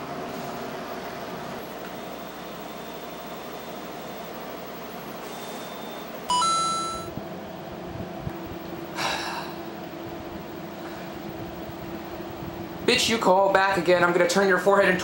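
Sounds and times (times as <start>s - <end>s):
steady background hum: 0.0s - 15.0s
electronic beep rising in pitch: 5.6s - 7.1s.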